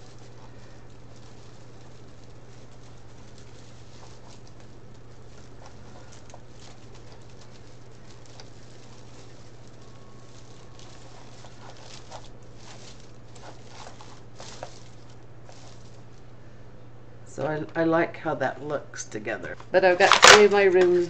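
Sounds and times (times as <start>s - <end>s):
plastic mesh crinkling: 0.0s - 16.4s
steady low hum: 0.0s - 21.0s.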